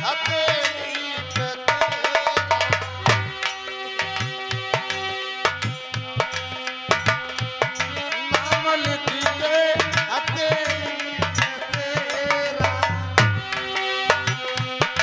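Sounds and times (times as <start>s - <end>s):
hand drums beating: 0.0s - 15.0s.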